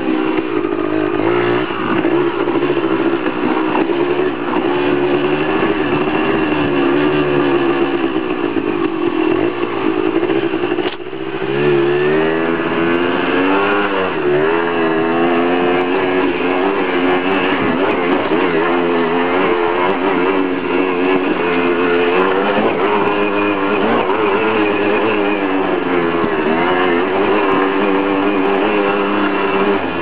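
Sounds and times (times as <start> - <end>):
dirt bike engine revving: 0.0 - 30.0
sharp click: 10.8 - 11.1.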